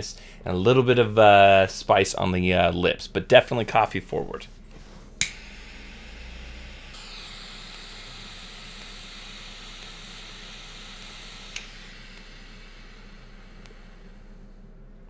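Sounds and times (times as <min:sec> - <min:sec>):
torch lighter flame hissing: 0:04.7 - 0:14.4
sharp click: 0:11.5 - 0:11.7.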